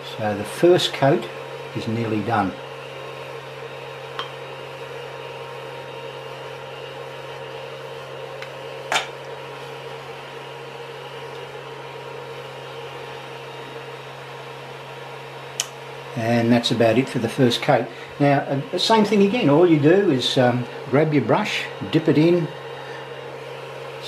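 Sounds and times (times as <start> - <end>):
printer fans humming: 0.0 - 24.0
sharp click: 15.6 - 15.8.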